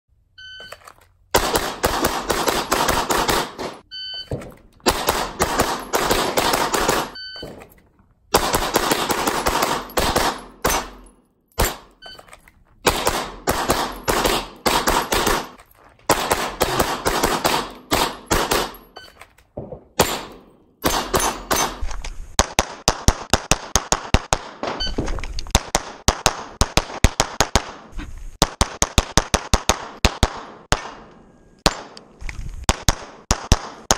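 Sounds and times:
short electronic beeps: 0.4s - 0.9s, 3.8s - 4.4s, 7.1s - 7.6s, 11.9s - 12.4s, 18.9s - 19.2s, 24.8s - 25.0s
pistol shots with echo: 1.3s - 3.8s, 4.8s - 7.6s, 8.3s - 12.0s, 12.8s - 19.0s, 19.9s - 21.8s.

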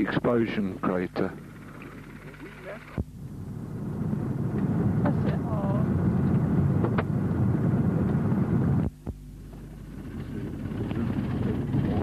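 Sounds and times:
engine hum: 0.0s - 12.0s
car driving on gravel road: 9.4s - 12.0s.

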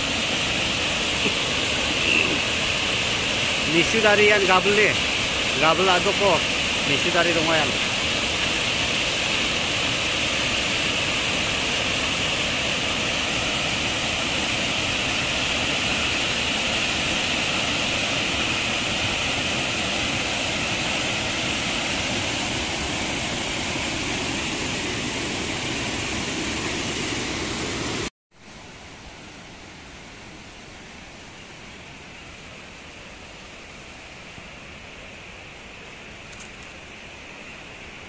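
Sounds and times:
waterfall rushing: 0.0s - 28.1s.

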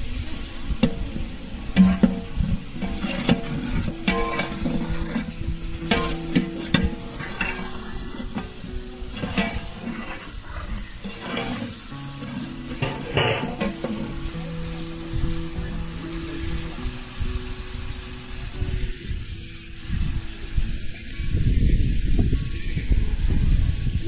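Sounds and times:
food sizzling in a pan: 0.0s - 24.0s
ladle scraping a pan: 1.7s - 14.4s
background music with held notes: 1.8s - 10.3s, 11.0s - 21.4s.

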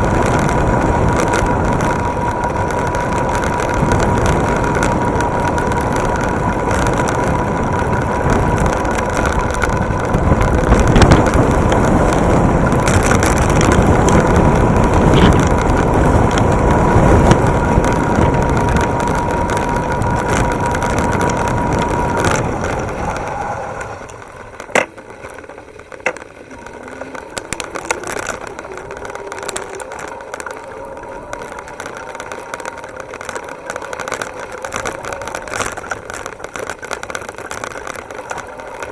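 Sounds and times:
electric bike high whine: 0.0s - 38.9s
road rumble: 0.0s - 38.9s
wind over microphone: 0.0s - 38.9s
rattling: 7.8s - 38.9s.

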